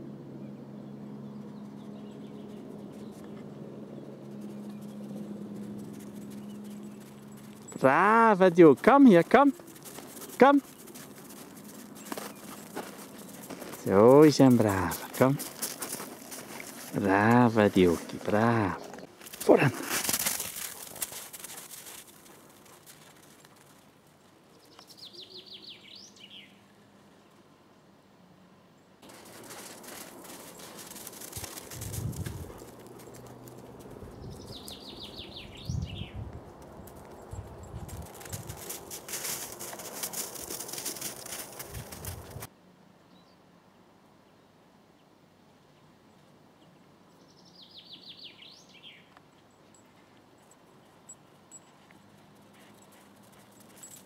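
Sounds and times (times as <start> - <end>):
songbird singing: 0.4 - 21.0, 24.4 - 42.4, 43.0 - 43.5, 44.2 - 54.0
faint outdoor hiss: 6.0 - 54.0
footsteps crunching in snow: 8.6 - 23.8, 29.0 - 34.7, 37.8 - 42.5.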